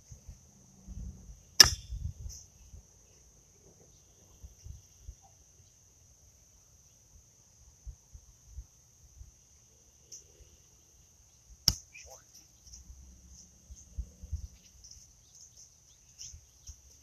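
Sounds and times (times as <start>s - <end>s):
crickets trilling: 0.0s - 17.0s
horseshoe hitting pit: 1.6s - 2.0s.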